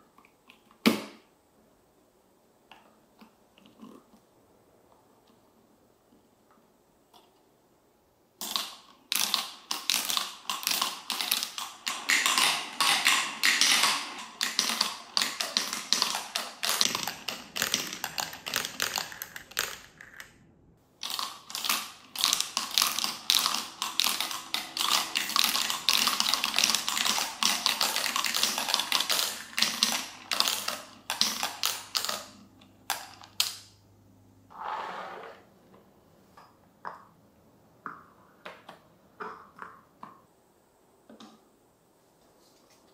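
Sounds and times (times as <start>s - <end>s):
marbles rattling down toy track: 8.4s - 20.3s, 21.0s - 32.4s.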